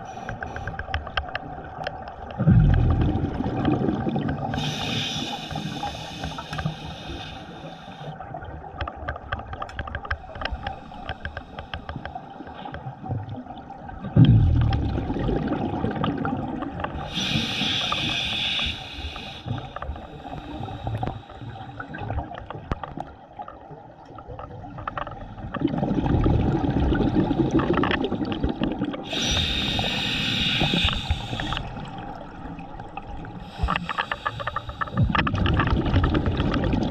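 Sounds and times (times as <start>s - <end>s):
bubbling exhaled air underwater: 1.5s - 7.4s, 13.2s - 36.9s
regulator inhalation hiss: 4.6s - 8.1s, 17.0s - 21.8s, 29.1s - 31.7s, 33.4s - 35.1s.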